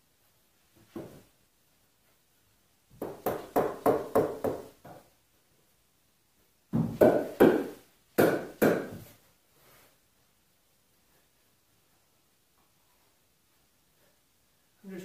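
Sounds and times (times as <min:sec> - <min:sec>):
mallet striking wood: 0:06.8 - 0:09.0.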